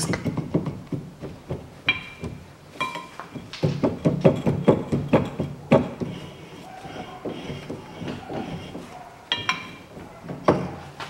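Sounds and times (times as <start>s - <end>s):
metal knocks and clunks: 0.0s - 11.0s
metallic rings from brake disc: 1.9s - 3.5s, 9.3s - 9.8s.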